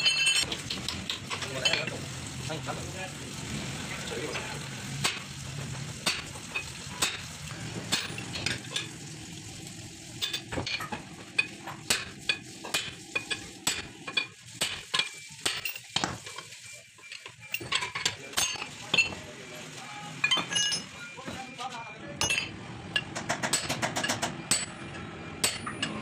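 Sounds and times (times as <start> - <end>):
hammer striking steel rod: 11.9 - 16.2, 22.2 - 24.8, 25.4 - 26.0.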